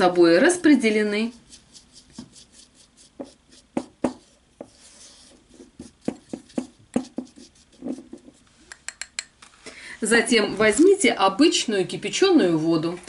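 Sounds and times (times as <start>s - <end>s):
brush rubbing powder: 0.4s - 8.6s
brush tapping glass bowl: 5.8s - 9.3s.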